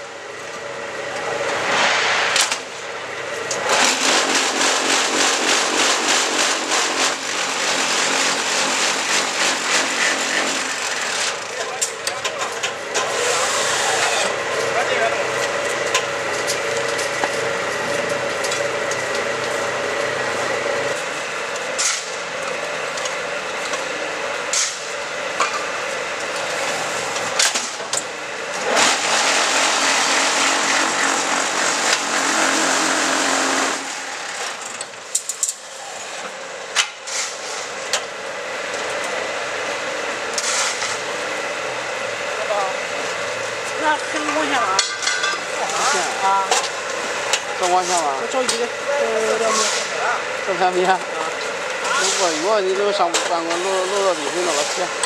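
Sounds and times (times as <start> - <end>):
machine motor hum: 2.5 - 35.1
loud machine rattle: 3.4 - 21.0, 27.2 - 35.6.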